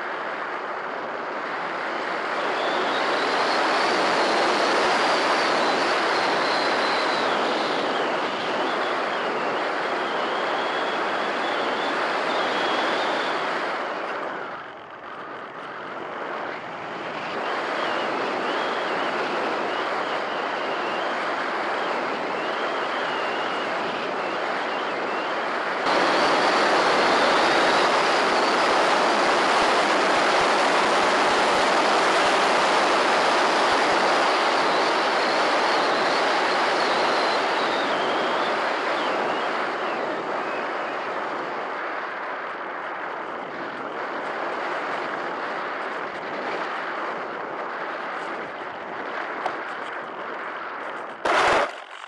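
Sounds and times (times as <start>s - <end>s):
airflow hiss: 25.9s - 35.9s.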